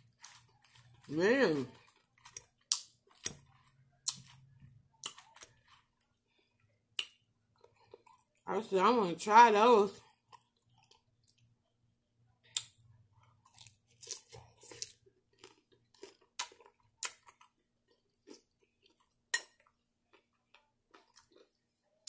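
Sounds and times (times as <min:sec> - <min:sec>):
person chewing crunchy salad: 0:00.0 - 0:08.4, 0:10.0 - 0:11.5, 0:12.5 - 0:21.8.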